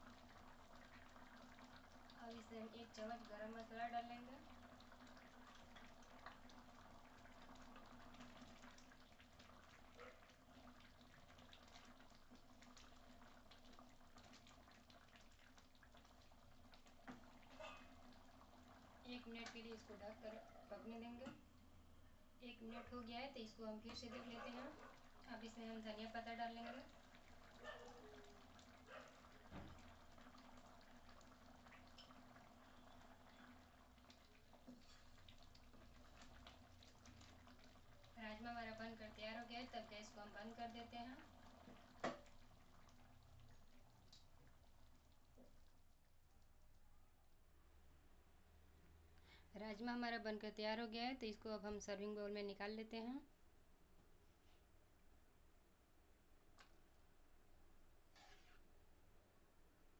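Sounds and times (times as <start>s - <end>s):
curry bubbling and popping: 0.0s - 21.8s, 23.0s - 47.5s, 56.5s - 57.2s.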